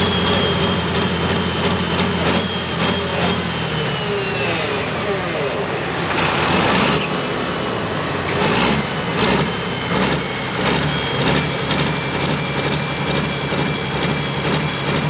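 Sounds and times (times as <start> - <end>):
steady high whistle: 0.0 - 5.7
pulling tractor engine running: 0.0 - 15.0.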